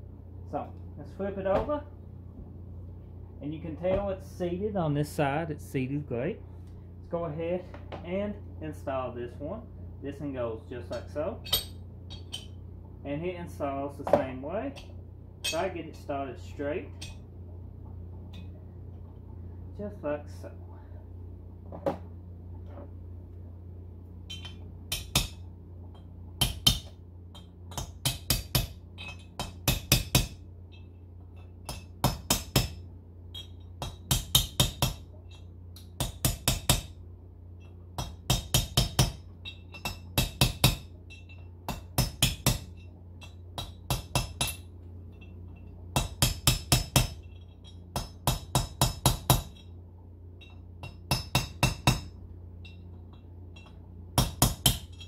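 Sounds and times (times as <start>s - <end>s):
hammer tapping metal punch: 50.4s - 55.0s.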